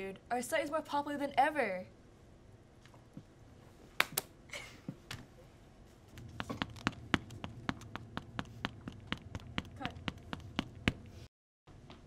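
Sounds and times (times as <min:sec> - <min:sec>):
hand slaps: 0:04.0 - 0:04.3.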